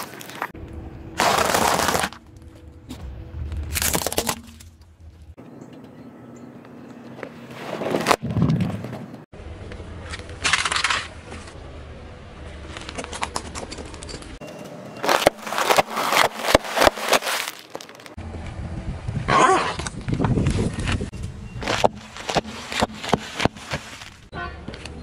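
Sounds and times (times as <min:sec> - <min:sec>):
tyre squashing water balloons: 0:15.0 - 0:18.2.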